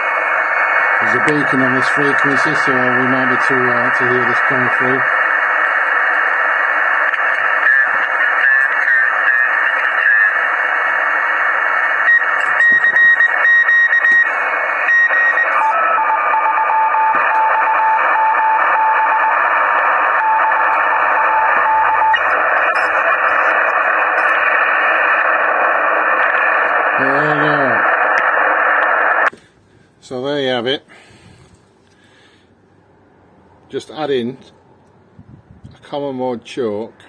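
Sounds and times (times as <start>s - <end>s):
radio receiver hiss: 0.0s - 16.4s, 17.1s - 29.5s
morse code beeping tone: 12.0s - 19.4s, 20.2s - 24.5s.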